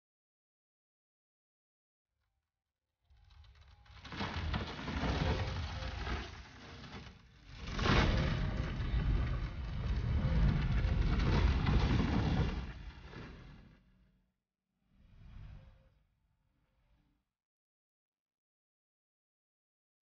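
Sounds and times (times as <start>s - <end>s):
dense rumbling noise: 3.2s - 13.9s.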